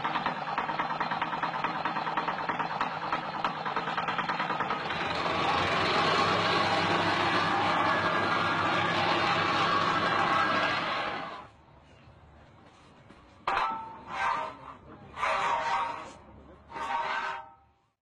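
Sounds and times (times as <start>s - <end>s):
plate compactor running: 0.0s - 11.5s.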